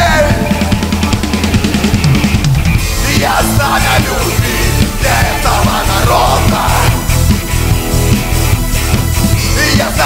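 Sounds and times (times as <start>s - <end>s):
drum kit beating: 0.0s - 10.0s
electric guitars and bass: 0.0s - 10.0s
voices singing: 2.8s - 7.5s, 9.3s - 10.0s.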